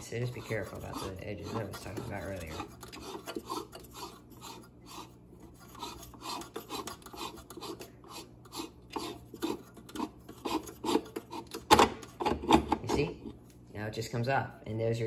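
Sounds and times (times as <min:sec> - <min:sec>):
grinder collar grating on thread: 0:00.0 - 0:11.6.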